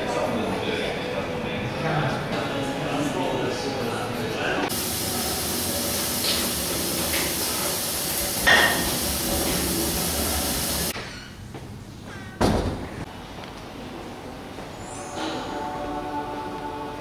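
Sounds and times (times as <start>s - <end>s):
tap water running into sink: 4.7s - 10.9s.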